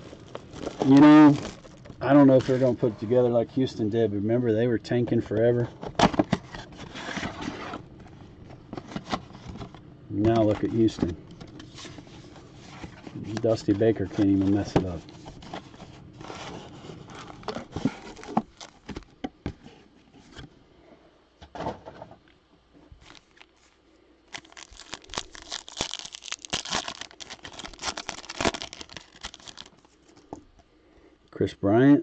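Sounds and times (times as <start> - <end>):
foil wrapper tearing and crinkling: 0.0 - 2.7, 16.2 - 19.0, 23.0 - 23.7, 24.3 - 30.0
cardboard box rustles and clicks: 8.7 - 20.5, 24.3 - 29.9.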